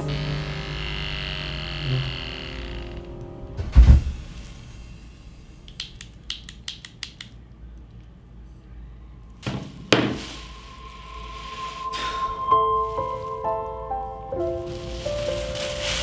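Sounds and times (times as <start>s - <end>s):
low thump: 3.6s - 4.4s.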